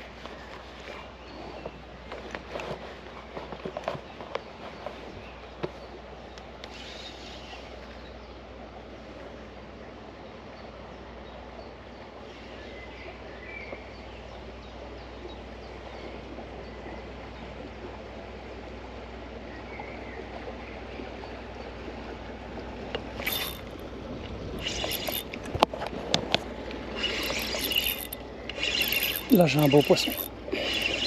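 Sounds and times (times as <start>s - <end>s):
outdoor background noise: 0.0s - 31.0s.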